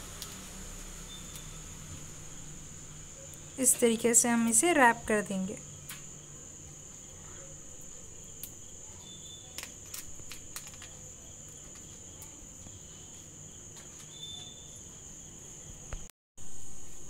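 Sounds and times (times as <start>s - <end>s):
crickets chirping: 0.0s - 17.0s
leaves crinkling: 9.5s - 12.8s.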